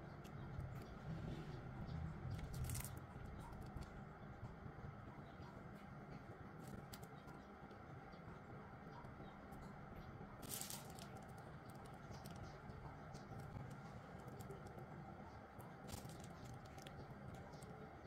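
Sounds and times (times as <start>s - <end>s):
faint room hum: 0.0s - 18.0s
piping bag rustling: 2.3s - 3.0s, 10.4s - 12.4s, 15.7s - 17.7s.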